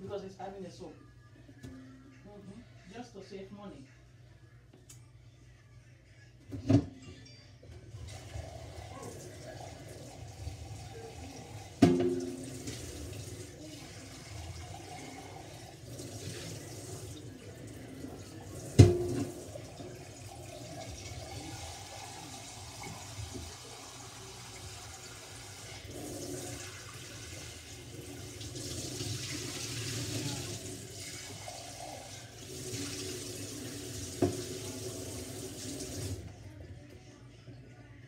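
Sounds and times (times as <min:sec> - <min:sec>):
faucet running into steel sink: 0:08.0 - 0:36.2
plastic jug rinsed by hand: 0:08.0 - 0:36.2.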